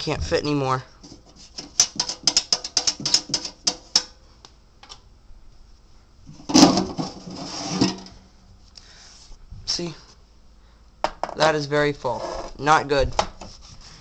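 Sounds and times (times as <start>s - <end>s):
metal pot rattling and clicking: 1.5s - 4.2s
metal pot scraping slide: 6.7s - 8.2s.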